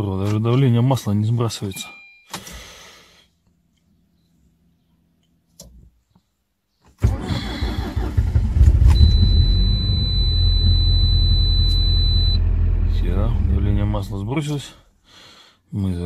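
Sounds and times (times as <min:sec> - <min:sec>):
car engine cranking and idling: 0:07.0 - 0:14.4.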